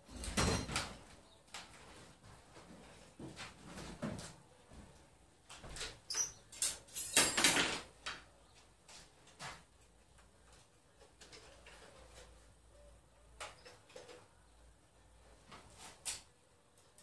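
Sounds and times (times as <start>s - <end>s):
tools and wood clattering: 0.0s - 2.0s, 5.5s - 8.3s, 9.0s - 12.6s, 13.3s - 14.5s.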